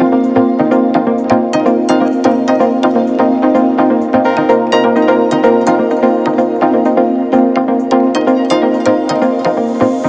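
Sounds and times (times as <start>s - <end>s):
electronic music with synth chords: 0.0s - 10.0s.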